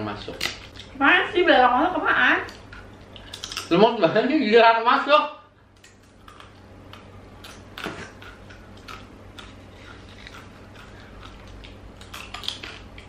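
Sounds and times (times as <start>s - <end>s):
crunchy chewing: 2.5s - 3.8s, 5.7s - 13.0s.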